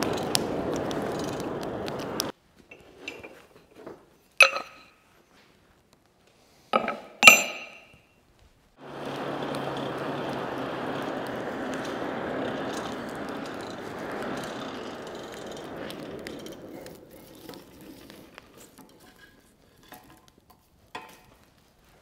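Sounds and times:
forge blower rushing air: 0:00.0 - 0:02.3, 0:08.8 - 0:18.9
fire crackling: 0:00.0 - 0:03.3, 0:08.7 - 0:22.0.

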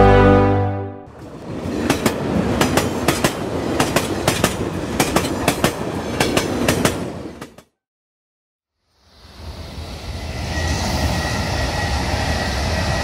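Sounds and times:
train rumble: 0:01.1 - 0:07.7.

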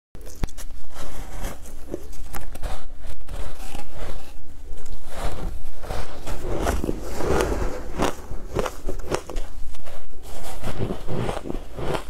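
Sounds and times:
biting and crunching ice: 0:06.3 - 0:12.0.

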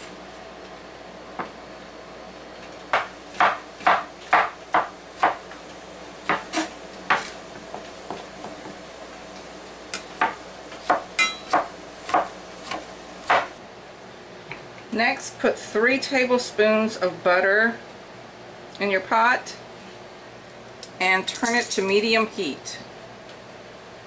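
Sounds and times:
knife chopping on wooden board: 0:02.9 - 0:05.4, 0:06.3 - 0:08.8, 0:10.2 - 0:13.5.

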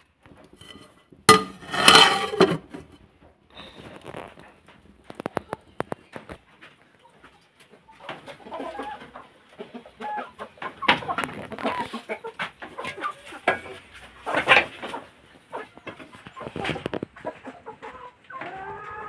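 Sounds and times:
hens clucking and calling: 0:04.4 - 0:19.0.

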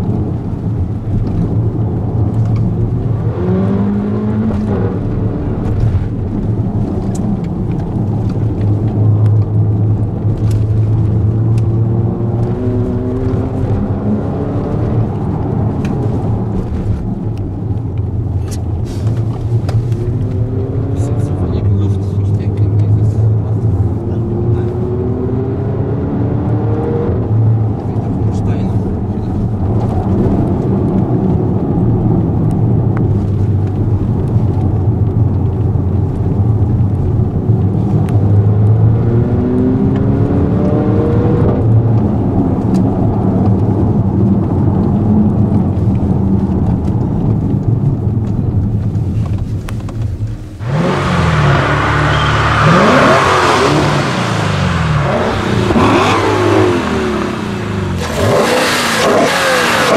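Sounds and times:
car engine drone from cabin: 0:00.0 - 0:59.9
engine revving: 0:38.1 - 0:41.8, 0:50.6 - 0:59.9.

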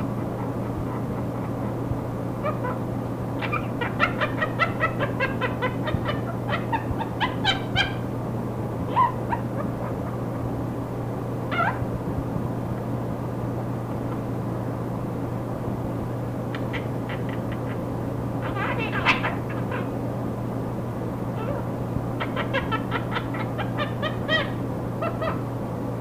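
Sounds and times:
parrot mimicking laughter: 0:00.0 - 0:02.8, 0:03.4 - 0:08.0, 0:08.9 - 0:10.4, 0:11.5 - 0:11.8, 0:16.6 - 0:17.8, 0:18.4 - 0:19.9, 0:21.4 - 0:25.4
recording hum and static: 0:00.0 - 0:26.0.

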